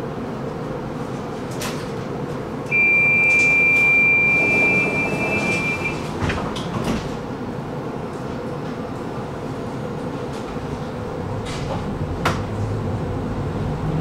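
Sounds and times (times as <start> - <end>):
tram low hum: 0.0 - 14.0
two-note warning beep: 2.7 - 6.0.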